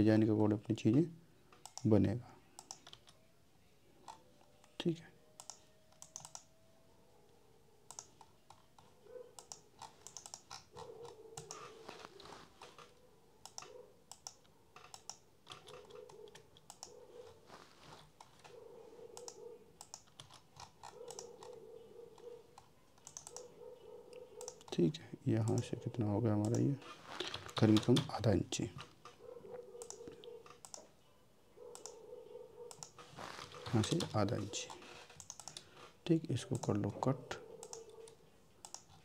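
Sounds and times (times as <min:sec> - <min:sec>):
keyboard and mouse clicking: 0:01.6 - 0:01.9, 0:02.6 - 0:03.2, 0:05.4 - 0:06.5, 0:07.9 - 0:11.8, 0:12.6 - 0:17.0, 0:19.2 - 0:21.6, 0:22.2 - 0:23.5, 0:24.1 - 0:24.8, 0:25.4 - 0:25.7, 0:26.4 - 0:28.2, 0:29.8 - 0:30.9, 0:31.7 - 0:32.0, 0:32.7 - 0:35.7, 0:36.5 - 0:36.9, 0:37.6 - 0:39.0.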